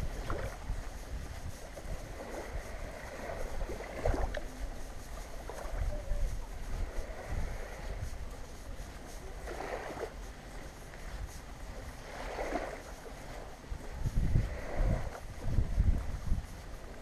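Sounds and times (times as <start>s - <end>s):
wavelets lapping on shore: 0.0s - 17.0s
wind rumble on microphone: 0.0s - 17.0s.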